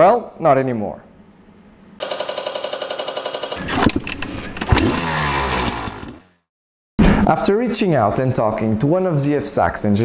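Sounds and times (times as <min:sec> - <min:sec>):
engine revving: 0:03.6 - 0:06.4.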